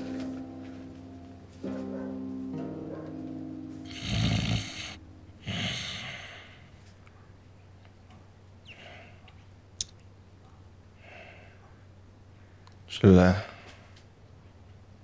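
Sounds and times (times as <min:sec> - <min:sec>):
man snoring loudly: 0:03.9 - 0:06.5.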